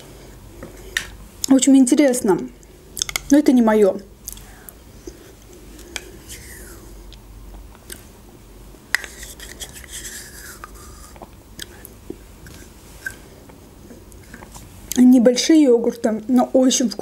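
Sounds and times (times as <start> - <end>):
lip and mouth eating noises: 5.8 - 8.1, 9.0 - 15.0
teaspoon scraping plastic cup: 9.0 - 11.2.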